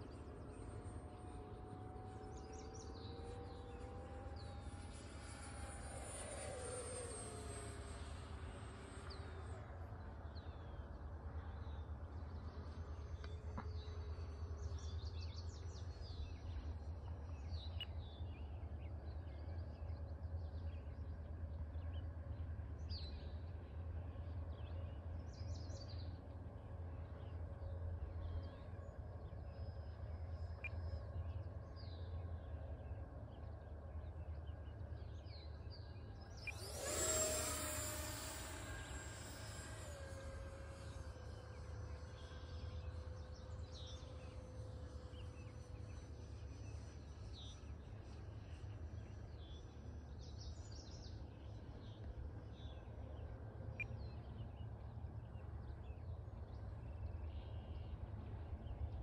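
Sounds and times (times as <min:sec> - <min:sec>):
model plane motor: 0:00.0 - 0:15.8, 0:34.0 - 0:49.9.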